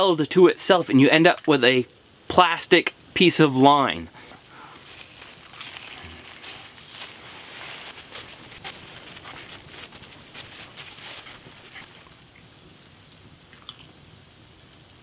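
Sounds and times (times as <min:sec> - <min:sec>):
plastic bag crinkling: 0:04.2 - 0:12.4.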